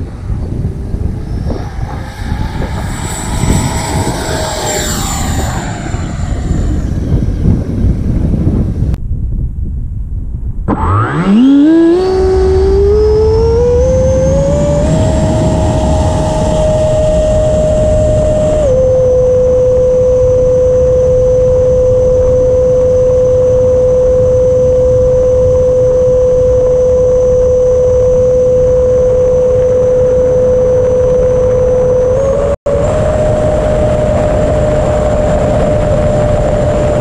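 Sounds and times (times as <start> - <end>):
electric ducted fan whine: 0.0 - 9.0, 10.6 - 37.0
rush of air: 0.0 - 9.0.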